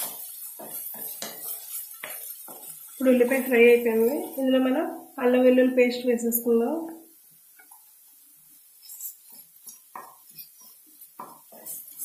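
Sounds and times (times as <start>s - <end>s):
wooden spatula scraping pan: 0.0s - 4.6s, 8.8s - 12.0s
onion paste frying: 0.0s - 12.0s.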